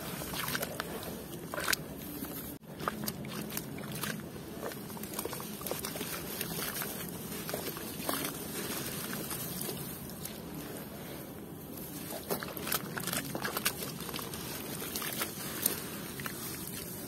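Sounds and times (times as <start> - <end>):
mud squelching and sloshing: 0.0 - 17.0
small splats and drips: 11.8 - 17.0.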